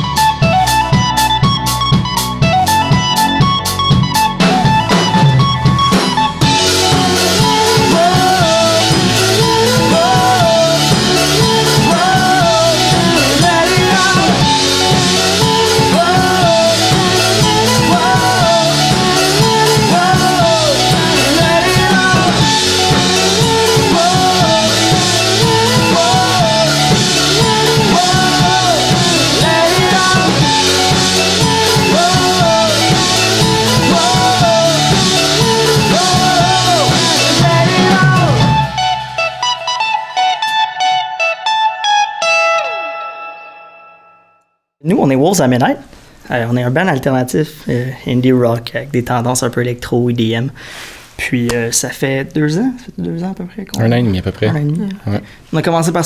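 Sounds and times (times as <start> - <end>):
drum kit: 0.0 - 41.2
bass guitar: 0.0 - 43.4
electric guitar: 0.0 - 44.4
person singing: 6.4 - 41.8.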